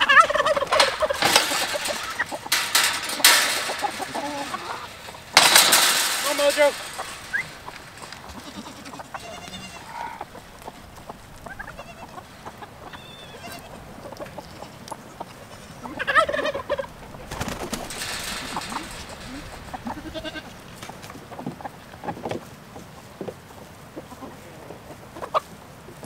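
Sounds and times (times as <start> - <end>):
chickens clucking: 0.0 - 26.0
goats bleating: 8.0 - 10.4, 11.5 - 12.3, 12.9 - 13.8, 14.4 - 16.8, 19.2 - 20.6.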